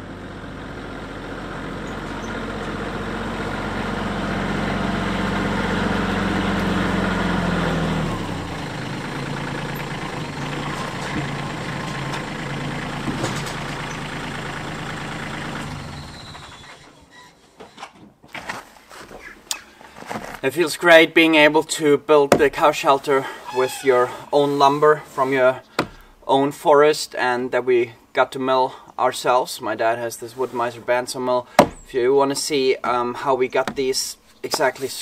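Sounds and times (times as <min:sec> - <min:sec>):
tractor engine running: 0:00.0 - 0:17.1, 0:22.2 - 0:26.3, 0:30.4 - 0:35.0.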